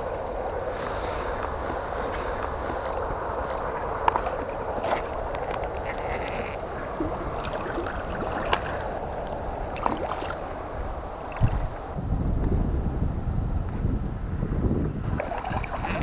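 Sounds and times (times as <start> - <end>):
wind rumble on microphone: 0.0 - 16.0
fish splashing in water: 0.3 - 12.0, 15.1 - 16.0.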